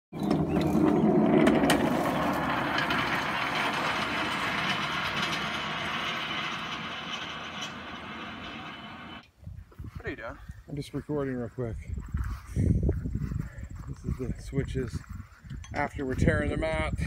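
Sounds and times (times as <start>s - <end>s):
rail car wheels rattling on rails: 1.5s - 9.2s.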